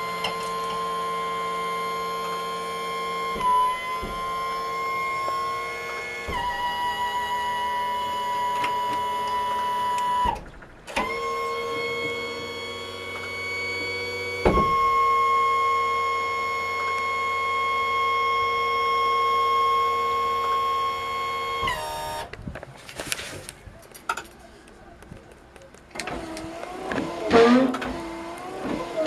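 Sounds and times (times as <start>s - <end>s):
electric trim motor whine: 11.0s - 22.2s.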